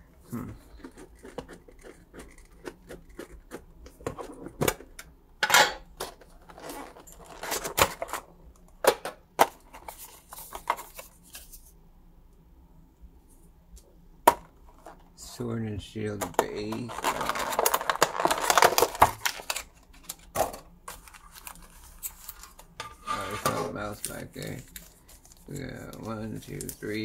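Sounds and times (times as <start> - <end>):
rustles and scrapes: 9.7 - 11.8, 20.9 - 27.0.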